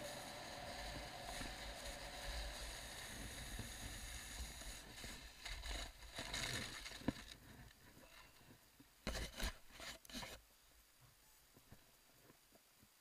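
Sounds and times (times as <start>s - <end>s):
sled scraping over snow: 0.0s - 7.6s.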